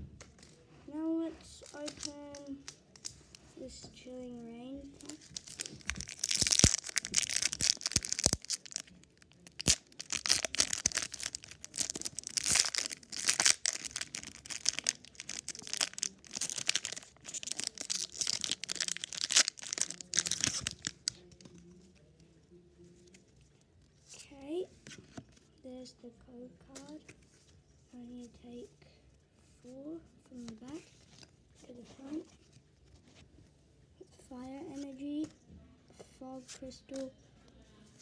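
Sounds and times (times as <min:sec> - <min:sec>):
foil wrapper tearing and crinkling: 0:05.0 - 0:21.3.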